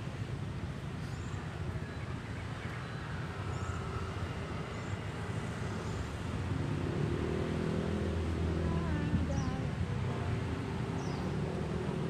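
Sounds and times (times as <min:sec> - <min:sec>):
road traffic rumble: 0:00.0 - 0:12.0
vehicle engine: 0:03.0 - 0:12.0.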